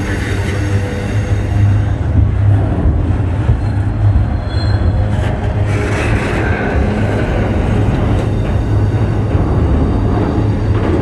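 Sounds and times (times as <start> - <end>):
train wheels rumbling on rail: 0.0 - 11.0
high wheel squeal: 3.6 - 5.1.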